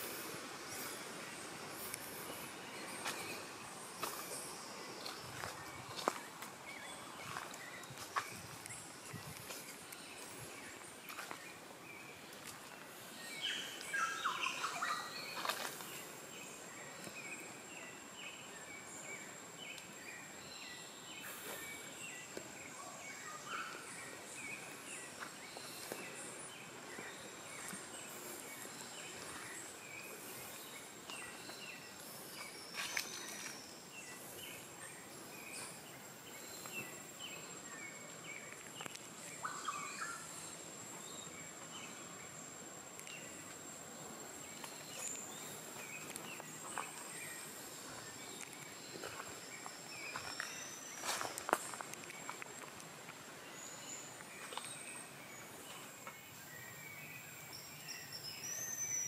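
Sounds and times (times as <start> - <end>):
footsteps on dirt trail: 1.7 - 13.8, 24.4 - 34.6, 44.4 - 53.3
bird chirps and calls: 13.3 - 16.0.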